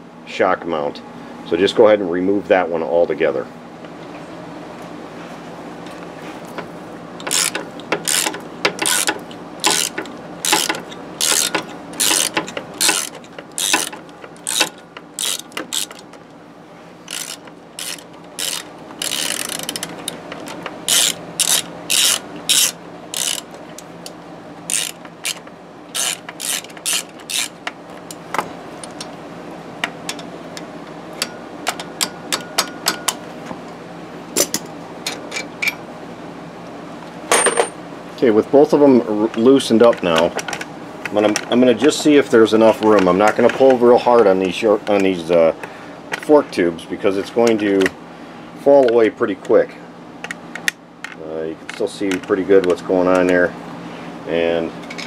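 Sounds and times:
ratchet wrench clicking: 7.2 - 16.0, 17.1 - 23.5, 24.7 - 27.6.

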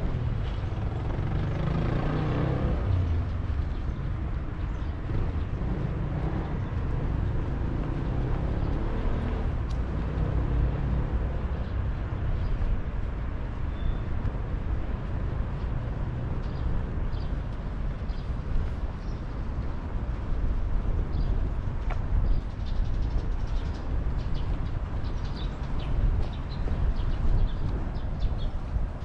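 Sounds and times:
traffic rumble: 0.0 - 29.0.

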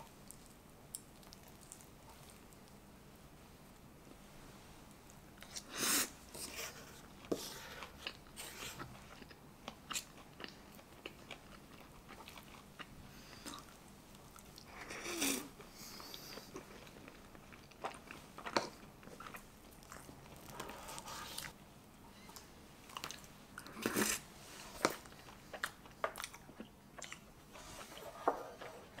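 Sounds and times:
chewing: 7.8 - 14.7, 16.0 - 21.6, 24.8 - 29.0.

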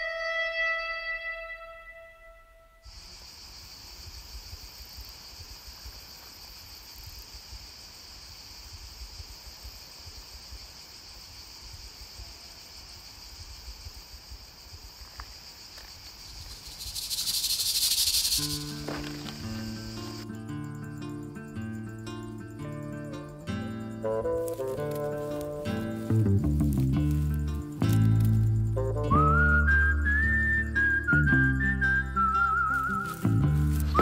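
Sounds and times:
insects chirring: 2.8 - 34.0
loud rushing hissing noise: 16.3 - 20.2.

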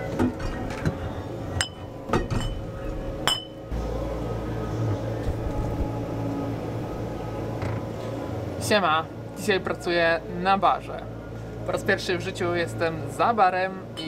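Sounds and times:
steady low hum: 0.0 - 14.0
glass bottles clinking: 1.6 - 3.7.

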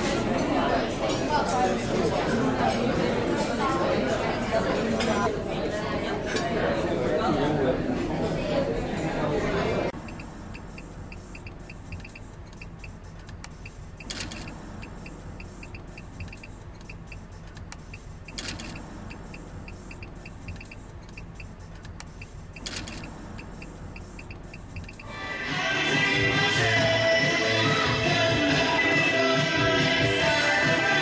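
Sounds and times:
turn signal ticking: 10.0 - 22.6, 23.3 - 25.1.

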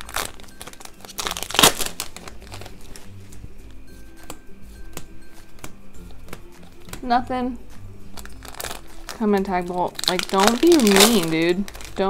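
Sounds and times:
foil wrapper crinkling: 0.0 - 3.4, 8.1 - 12.0
faint background music: 0.0 - 12.0.

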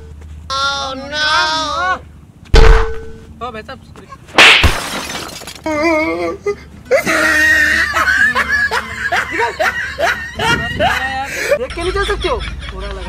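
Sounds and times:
loud crash: 4.4 - 5.6.

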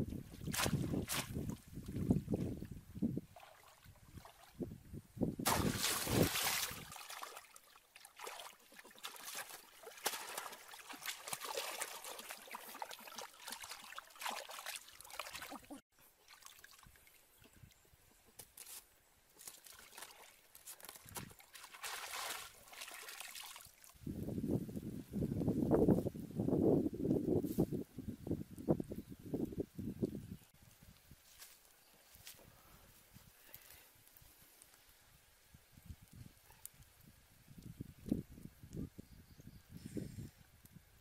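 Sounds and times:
water splashing and trickling: 0.0 - 4.8, 5.4 - 17.9, 18.6 - 24.3.

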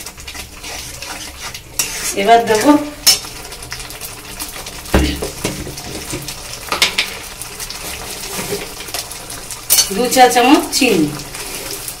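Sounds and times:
spice paste sizzling in oil: 0.0 - 12.0.

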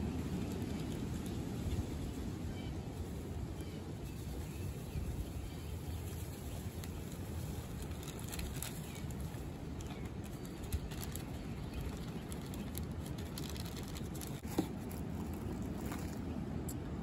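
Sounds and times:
plastic bag rustling: 6.0 - 16.4.

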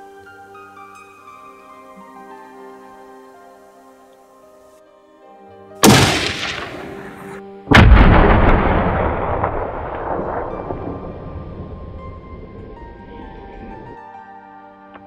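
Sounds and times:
rifle shots with echo: 5.8 - 11.2.

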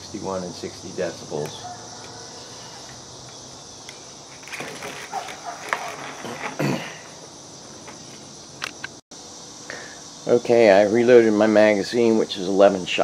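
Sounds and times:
insects chirring: 0.0 - 13.0
handling clicks and rustles: 2.9 - 6.7.

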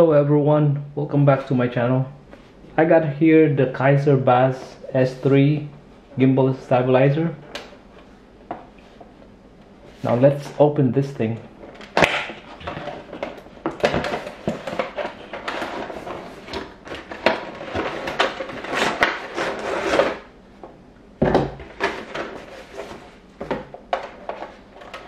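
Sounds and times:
cardboard rustling: 12.4 - 20.3, 21.6 - 25.0
box scraping out of cardboard sleeve: 18.6 - 20.2.

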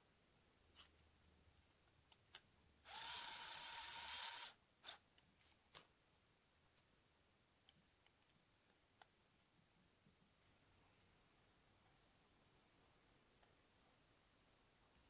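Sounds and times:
electric screwdriver whining: 2.9 - 4.6.

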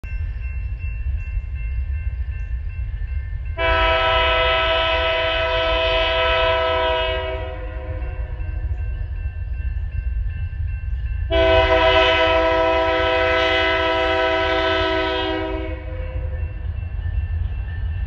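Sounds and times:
locomotive air horn blast: 3.6 - 8.3, 11.3 - 16.2.

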